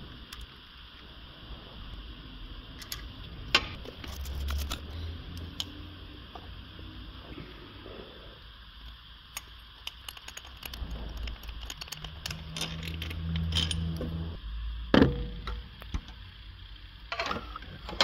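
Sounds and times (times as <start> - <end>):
low hum: 0.0 - 18.0
metal tools clicking and rattling: 9.4 - 14.0.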